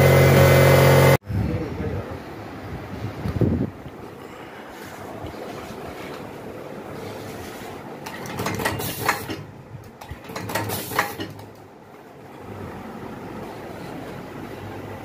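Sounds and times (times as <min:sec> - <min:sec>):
pneumatic cylinder clicks and air hiss: 0:08.1 - 0:09.4, 0:10.3 - 0:11.5.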